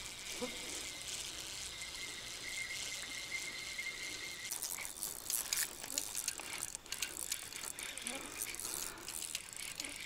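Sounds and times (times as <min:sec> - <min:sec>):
fishing reel ticking clicks: 0:00.0 - 0:10.0.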